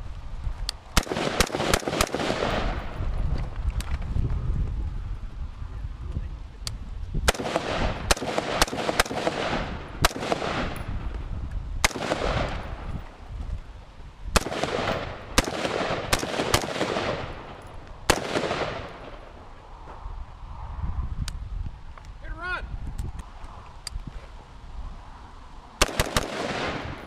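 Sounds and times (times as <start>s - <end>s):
rifle shots with echo: 1.0s - 3.0s, 7.3s - 11.1s, 11.8s - 13.0s, 14.4s - 19.4s, 25.8s - 27.0s.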